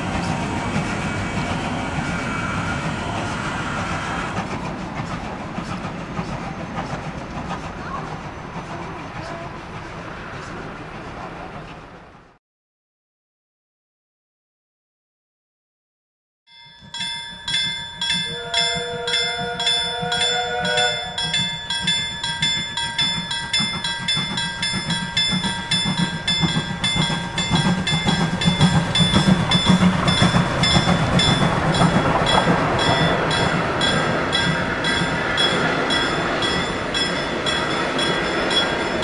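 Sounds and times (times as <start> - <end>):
steam locomotive chuffing: 0.0 - 12.4, 16.8 - 39.0
steam whistle chord: 18.0 - 24.1.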